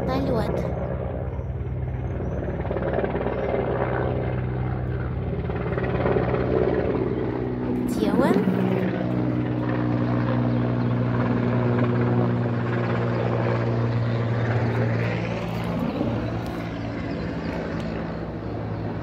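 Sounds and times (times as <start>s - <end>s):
helicopter rotor drone: 0.0s - 19.0s.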